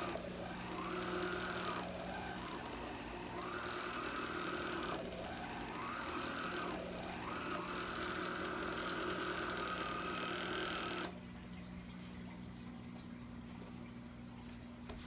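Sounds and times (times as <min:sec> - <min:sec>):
handheld vacuum motor whine: 0:00.0 - 0:11.2.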